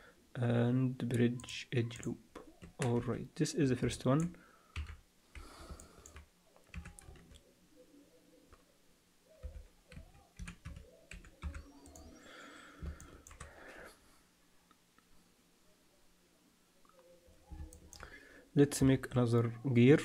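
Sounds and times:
keyboard and mouse clicks: 4.2 - 7.4, 9.4 - 12.2, 12.8 - 13.6, 16.9 - 18.1.

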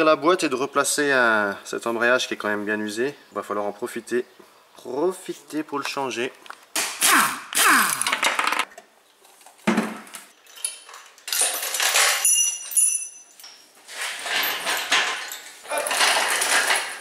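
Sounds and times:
pneumatic impact wrench whine: 7.0 - 8.5
steel chain clinking and rattling: 10.3 - 17.0.

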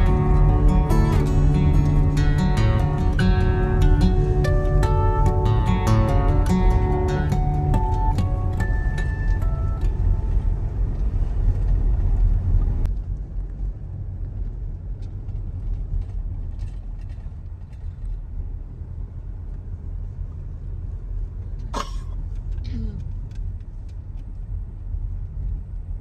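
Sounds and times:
car engine and tyre rumble: 0.0 - 26.0.

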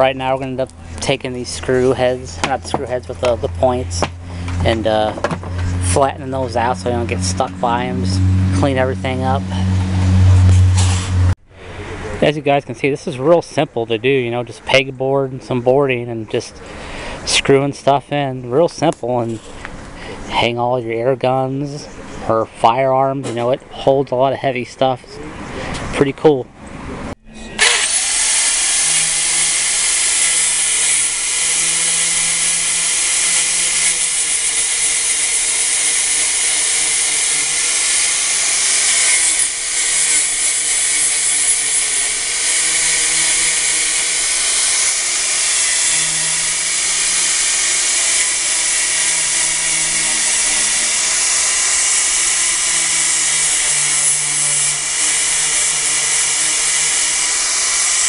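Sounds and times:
angle grinder whining: 0.0 - 12.1, 27.1 - 58.0.

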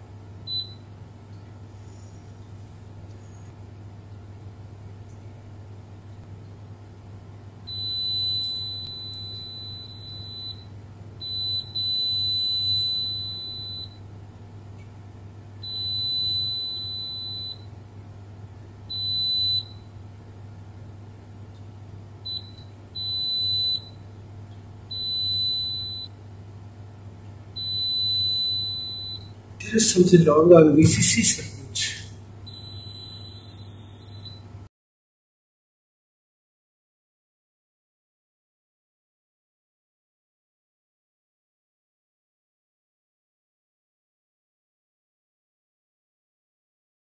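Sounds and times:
multimeter continuity beeps: 0.5 - 0.8, 7.7 - 14.0, 15.6 - 17.7, 18.9 - 19.9, 22.2 - 24.0, 24.9 - 26.2, 27.5 - 34.4.

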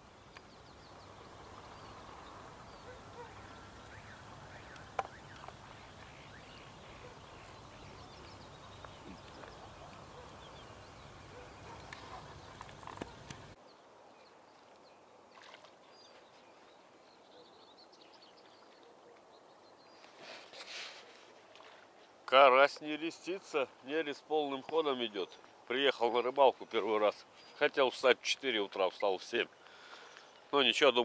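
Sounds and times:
birds chirping and calling: 0.4 - 14.4, 28.8 - 31.0.

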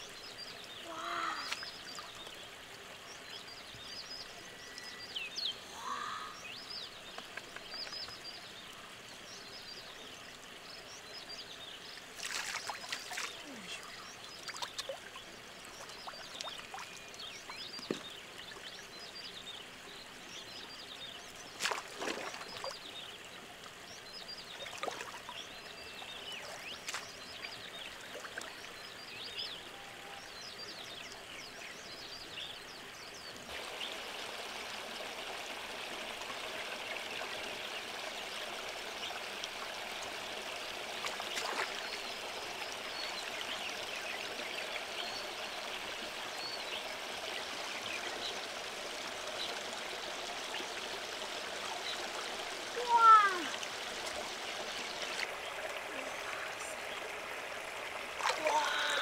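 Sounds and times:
stream water sloshing and trickling: 0.0 - 59.0
water splashes: 11.8 - 18.9, 21.2 - 23.9, 24.5 - 28.8, 33.4 - 59.0.

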